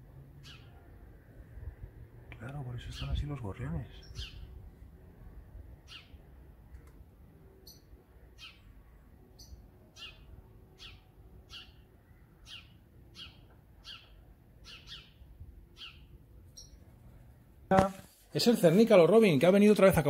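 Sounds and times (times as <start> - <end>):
sparrow chirping: 0.3 - 1.3, 2.7 - 4.7, 5.7 - 6.4, 7.5 - 17.1.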